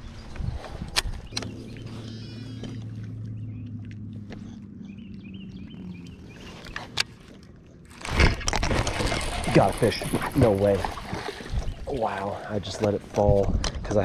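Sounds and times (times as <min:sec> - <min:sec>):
faint bird chirps: 0:01.2 - 0:06.9.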